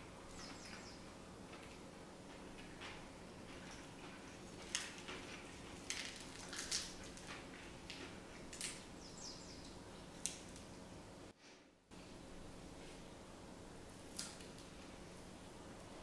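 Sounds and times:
faint steady hum: 0.0s - 16.0s
pancake crackling as torn: 5.8s - 7.3s.

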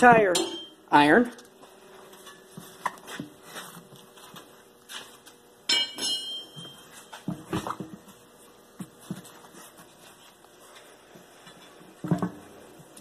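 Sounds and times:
sharp metallic clink: 5.7s - 6.6s.

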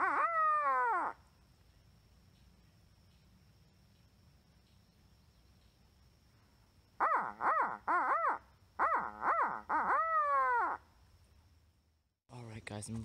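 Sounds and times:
owl call hoots: 0.0s - 1.2s, 7.0s - 10.8s.

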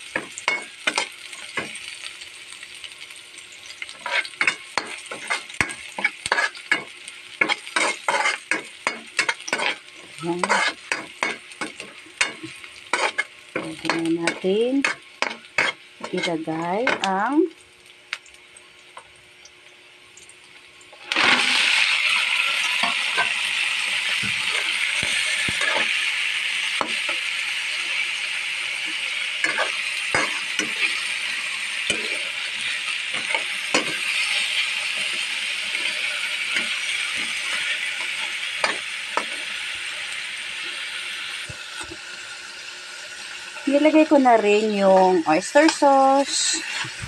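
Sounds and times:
food frying hiss: 0.0s - 47.0s
spatula and shells knocking pan: 0.1s - 1.9s, 4.0s - 17.2s, 26.8s - 27.2s, 29.4s - 31.0s, 31.8s - 34.3s, 34.9s - 39.4s.

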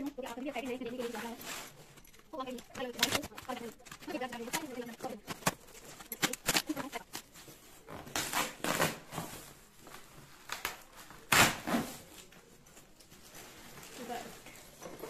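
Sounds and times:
plastic wrapping crinkling: 0.0s - 15.0s
cardboard tearing: 5.4s - 9.6s, 10.5s - 12.3s.

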